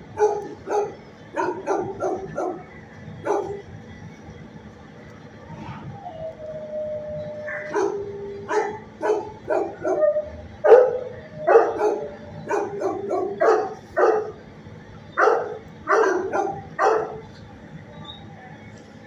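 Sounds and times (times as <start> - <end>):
dog barking: 0.2 - 2.6, 3.2 - 3.6, 7.5 - 14.4, 15.2 - 17.2.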